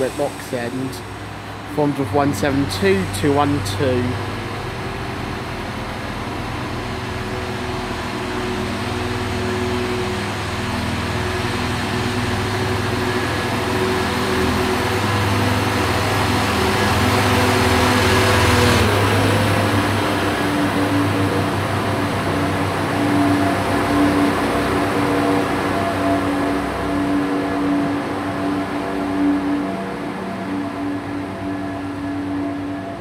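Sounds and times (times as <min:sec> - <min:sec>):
diesel train engines accelerating: 0:00.0 - 0:33.0.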